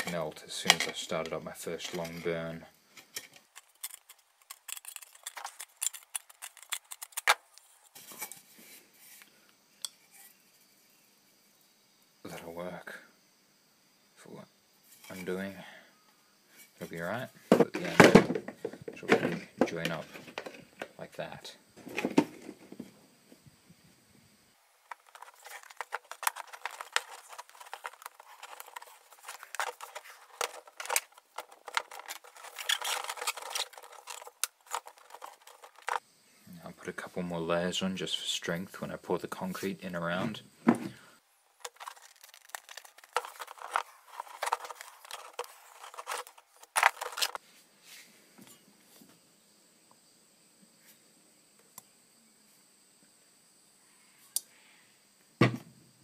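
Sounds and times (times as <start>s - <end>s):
metal can scraping: 0.0s - 2.4s, 3.0s - 8.4s, 24.8s - 36.0s, 41.6s - 47.4s
duct tape peeling crackles: 3.5s - 7.4s, 24.9s - 36.0s, 41.7s - 45.4s
knock: 55.4s - 55.7s.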